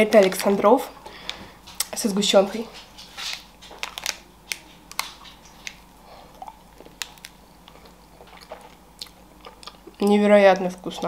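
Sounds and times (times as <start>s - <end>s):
chewing with wet mouth clicks: 4.5s - 11.0s.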